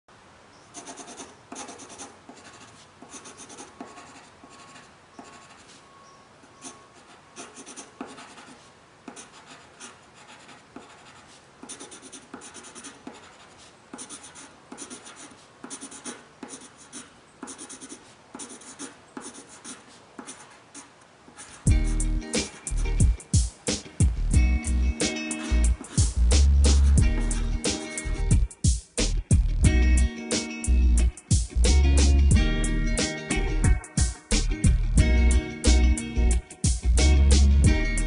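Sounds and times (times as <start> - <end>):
pencil scratching on paper: 0.8 - 5.8, 6.6 - 22.8, 25.3 - 27.6.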